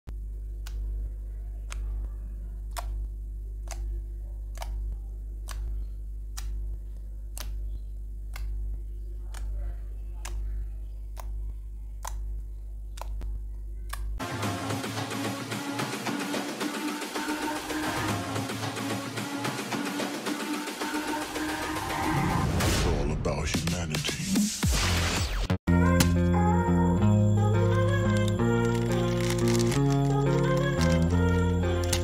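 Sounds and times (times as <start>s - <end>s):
steady low hum: 0.1s - 22.0s, 25.7s - 32.0s
music: 14.2s - 32.0s.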